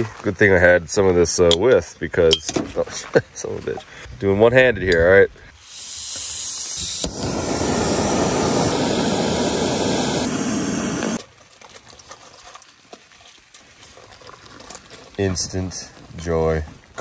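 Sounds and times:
gas stove flame hissing: 0:05.6 - 0:11.2.

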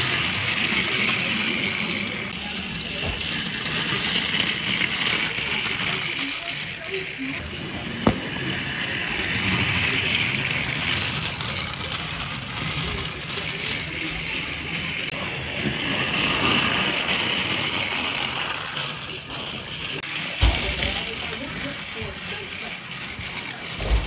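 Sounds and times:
toy train motor whirring: 0:00.0 - 0:24.0.

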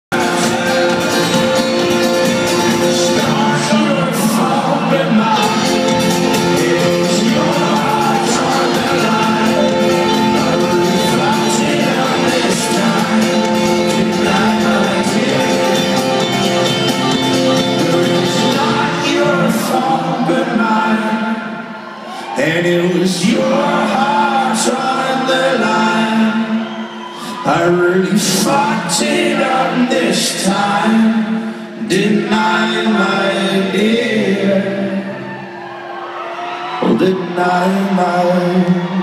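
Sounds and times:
man singing: 0:00.0 - 0:26.6, 0:27.3 - 0:35.3, 0:36.8 - 0:39.0
folk-rock band playing live: 0:00.1 - 0:21.6.

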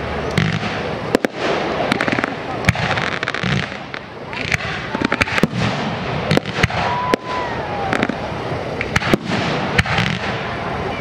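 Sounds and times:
fireworks bangs: 0:00.0 - 0:11.0
fireworks crackling: 0:00.0 - 0:11.0
descending firework whistle: 0:04.3 - 0:11.0.

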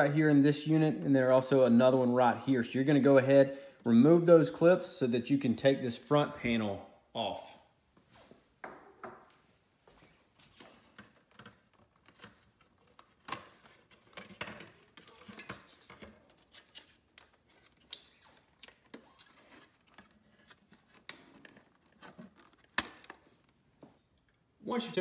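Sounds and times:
sharp plastic snaps: 0:22.6 - 0:23.2.

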